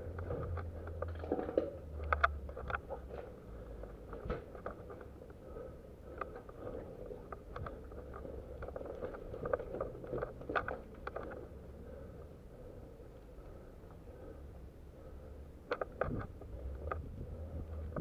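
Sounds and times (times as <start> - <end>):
low rumble: 16.0 - 18.0.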